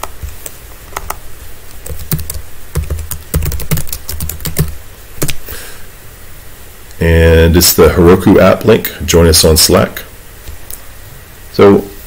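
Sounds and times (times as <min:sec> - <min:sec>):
computer keyboard typing: 0:01.8 - 0:05.4.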